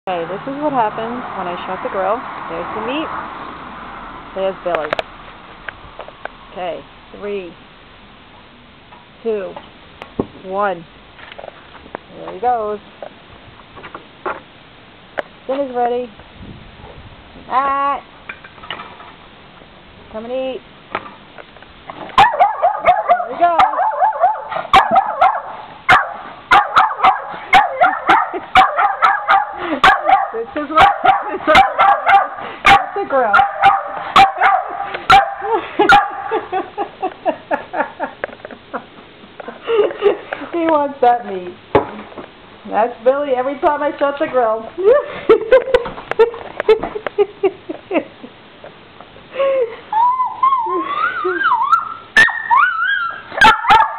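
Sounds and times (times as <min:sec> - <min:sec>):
dog barking in sharp yaps: 0:22.2 - 0:36.3, 0:52.2 - 0:53.9
dog whining: 0:49.9 - 0:53.9.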